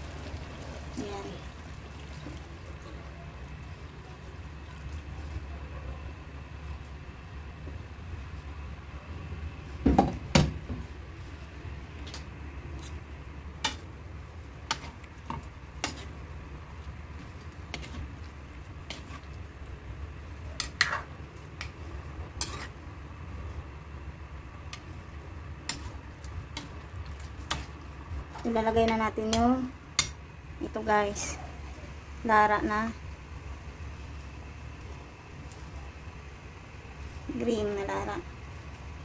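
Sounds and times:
steady low hum: 0.0 - 39.0
metal ladle scraping a wok: 20.6 - 21.1, 22.4 - 22.8.

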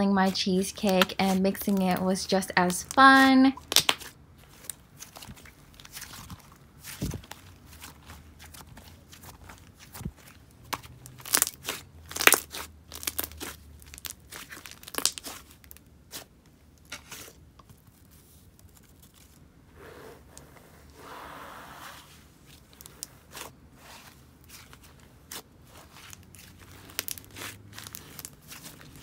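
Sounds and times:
sticky slime pops and crackles: 3.6 - 4.1, 10.7 - 15.4.

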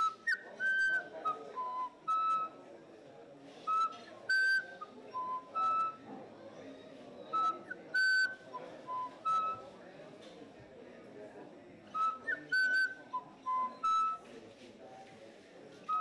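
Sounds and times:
flute playing short notes: 3.7 - 6.0, 12.0 - 14.2.

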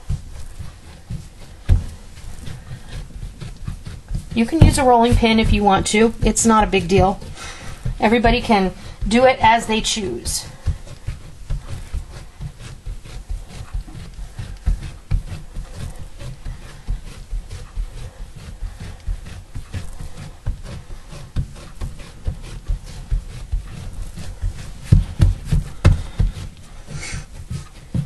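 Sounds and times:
hands patting dough: 0.0 - 28.0.

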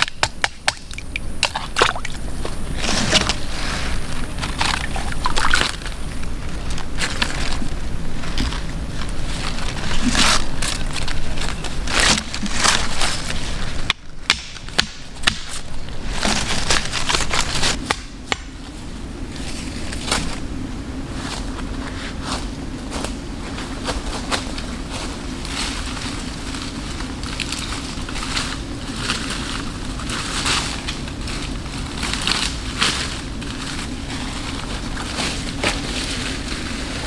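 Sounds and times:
bamboo fish trap scraping: 0.0 - 18.6
stream water splashing: 0.5 - 6.3
rustling brush: 0.8 - 13.9, 14.9 - 17.9, 18.5 - 37.0.

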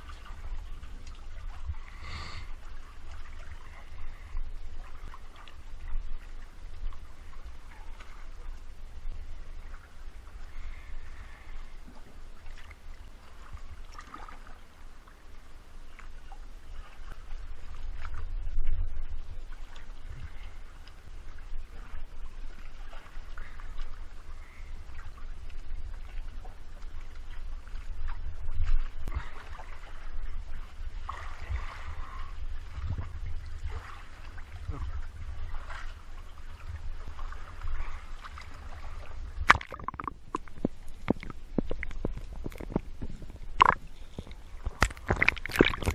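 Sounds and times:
sea water sloshing and splashing: 0.0 - 45.9
sharp splash: 39.4 - 40.5, 44.7 - 45.9
underwater clicks and pops: 39.4 - 45.9.

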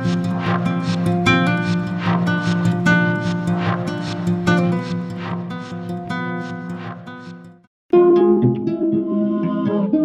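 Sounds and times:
plucked notes: 0.0 - 10.0.

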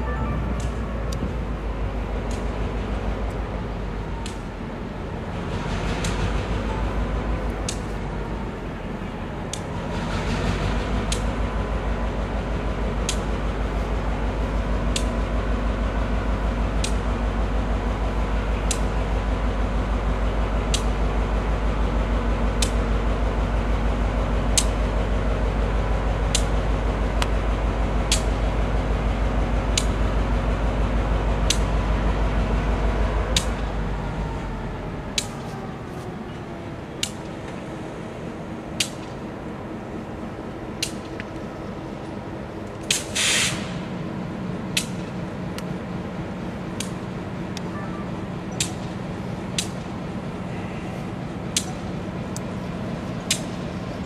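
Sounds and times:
diesel locomotive engine: 0.0 - 54.0
sharp clicks: 37.0 - 37.6, 48.5 - 50.0
brief hiss: 42.9 - 43.8.

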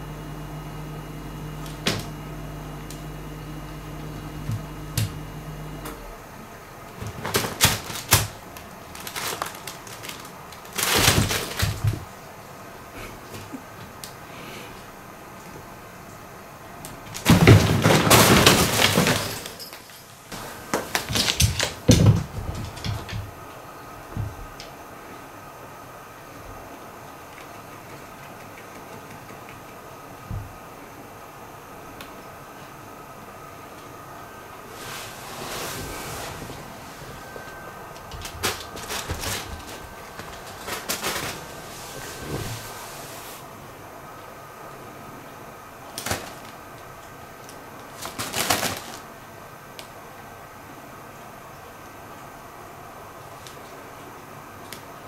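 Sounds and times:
fabric tunnel rustling and crinkling: 7.0 - 12.1, 34.7 - 43.4, 47.9 - 49.1.

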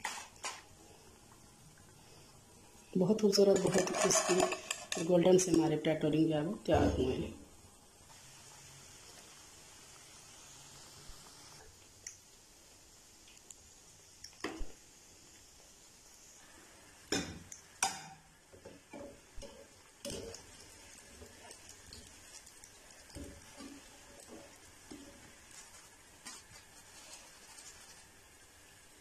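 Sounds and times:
hot oil sizzling: 0.0 - 29.0
metal spatula scraping frying pan: 3.5 - 5.1.

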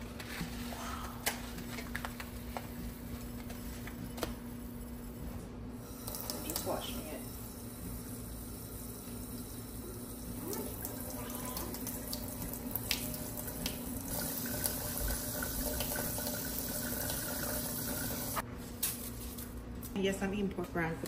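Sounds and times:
faucet running into metal sink: 5.9 - 7.3, 9.3 - 18.4.

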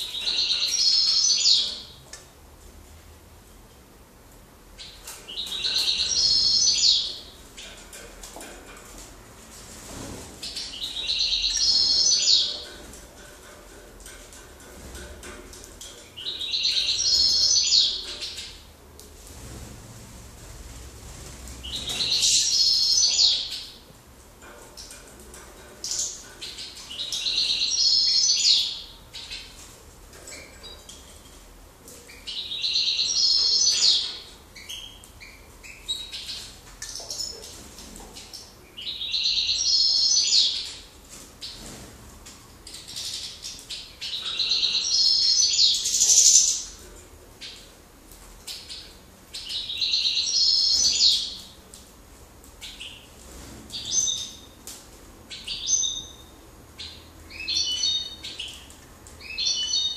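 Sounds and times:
finch twittering: 0.0 - 1.9, 4.8 - 7.7, 10.5 - 12.7, 16.2 - 18.5, 21.6 - 23.8, 32.2 - 37.3, 42.9 - 46.8, 48.5 - 51.5
bird chirps: 0.0 - 2.0, 4.8 - 7.7, 10.5 - 12.6, 16.2 - 18.6, 21.6 - 23.8, 32.1 - 37.4, 38.2 - 40.8, 42.7 - 46.7, 48.5 - 51.5.

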